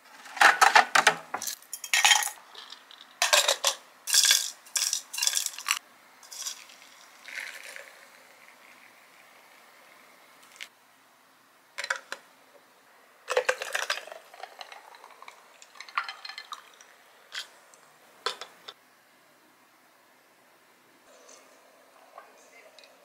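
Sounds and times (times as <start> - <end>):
water pouring into glass pitcher: 6.3 - 9.3, 13.5 - 17.0.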